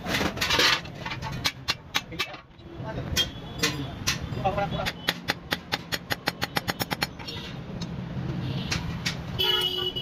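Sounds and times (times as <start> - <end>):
vehicle horn: 9.4 - 10.0.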